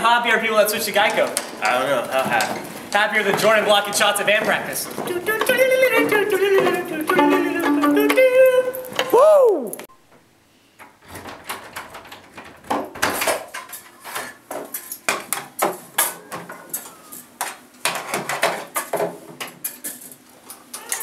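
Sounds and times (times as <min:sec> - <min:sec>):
door knocking and clattering: 0:10.9 - 0:13.7.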